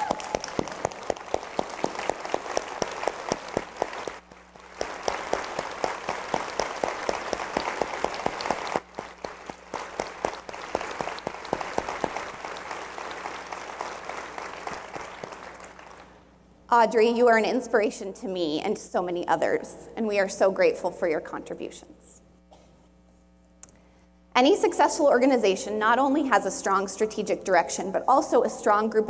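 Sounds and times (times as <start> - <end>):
audience applauding: 0.0 - 16.2.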